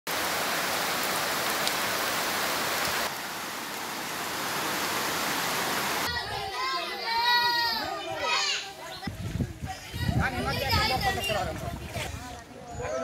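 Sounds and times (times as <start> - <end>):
heavy rain on leaves: 0.1 - 6.1.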